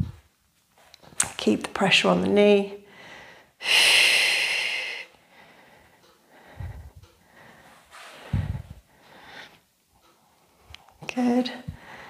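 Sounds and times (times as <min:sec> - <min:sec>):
short low thumps: 0:08.3 - 0:08.8.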